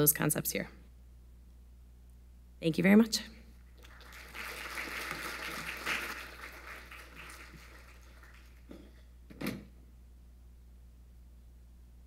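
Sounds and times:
audience applauding: 0:03.8 - 0:08.7.

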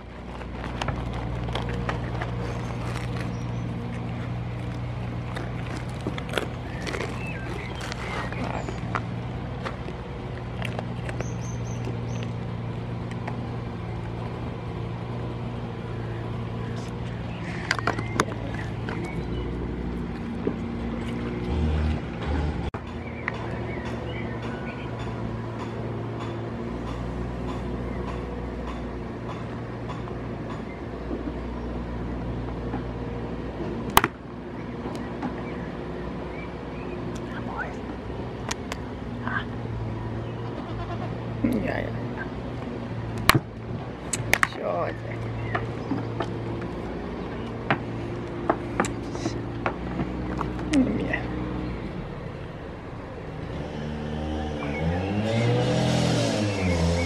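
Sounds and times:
goats nibbling with clicks: 0:00.0 - 0:14.4, 0:16.6 - 0:22.0, 0:44.0 - 0:44.6, 0:45.2 - 0:50.8
low motor drone: 0:00.0 - 0:57.0.

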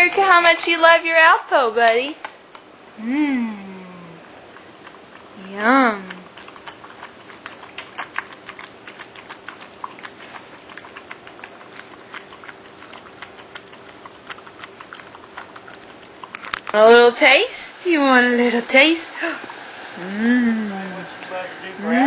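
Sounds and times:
dog chewing and smacking: 0:04.2 - 0:19.6.

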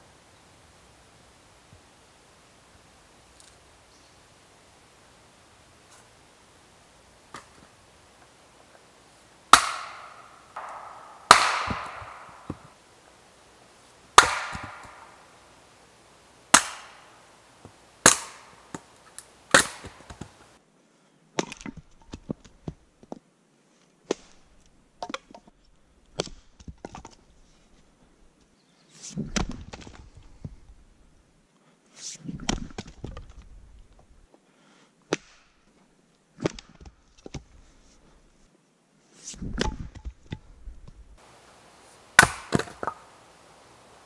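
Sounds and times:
lighter axe knocks: 0:09.5 - 0:12.7, 0:42.2 - 0:43.1
axe chopping firewood: 0:09.5 - 0:12.8, 0:14.1 - 0:15.2, 0:16.5 - 0:20.4, 0:35.1 - 0:35.5, 0:42.0 - 0:43.2
split wood clattering: 0:09.5 - 0:12.8, 0:14.2 - 0:15.2, 0:16.5 - 0:20.5, 0:42.1 - 0:43.3.

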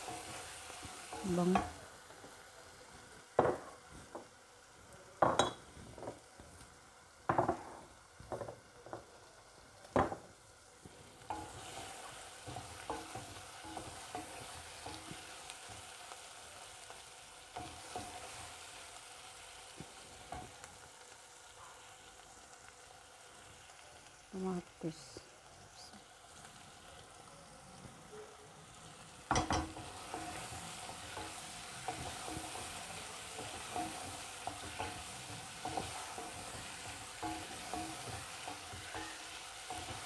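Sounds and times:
chicken sizzling in a pan: 0:00.0 - 0:40.0
wooden spatula scraping a pan: 0:11.0 - 0:16.0, 0:29.3 - 0:40.0.

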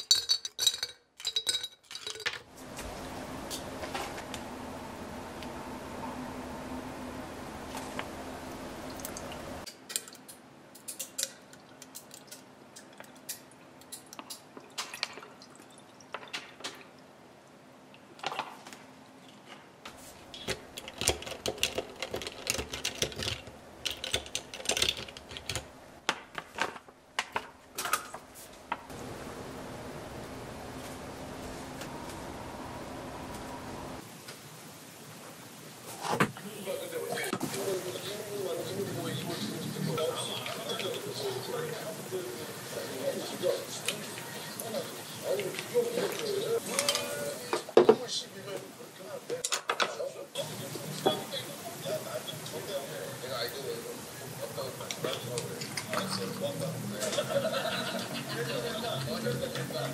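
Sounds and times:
ice cubes clinking in glass: 0:00.0 - 0:02.5
steady low hum: 0:02.5 - 0:09.7, 0:27.0 - 0:59.9.

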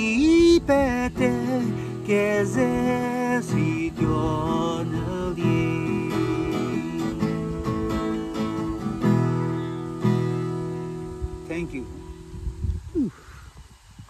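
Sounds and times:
man singing: 0:00.0 - 0:08.6
acoustic guitar strumming: 0:00.0 - 0:12.6.

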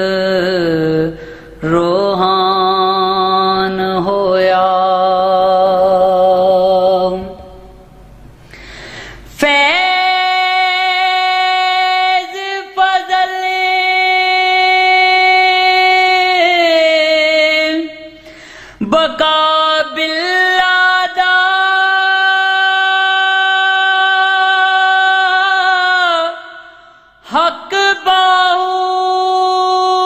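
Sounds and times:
man singing long notes: 0:09.4 - 0:18.2, 0:18.8 - 0:30.0.

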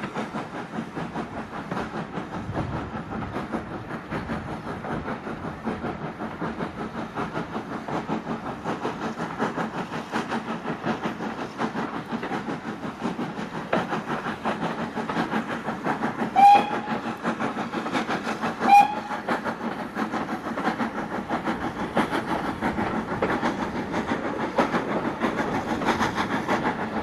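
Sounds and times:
train rhythmic rumble and clatter: 0:00.0 - 0:27.0
steam whistle toots: 0:16.3 - 0:17.0, 0:18.6 - 0:19.3.

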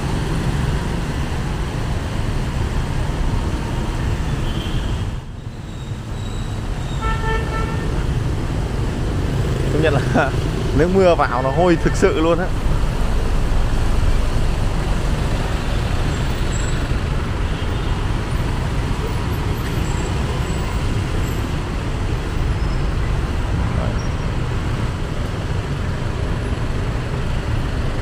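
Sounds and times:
road traffic on wet street: 0:00.0 - 0:28.0
minibus engine running: 0:12.1 - 0:28.0.

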